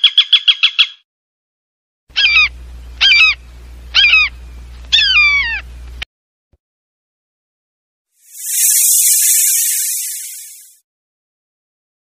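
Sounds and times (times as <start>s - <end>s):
low steady hum: 2.4s - 6.0s
fast trill of high chirps: 8.2s - 10.8s.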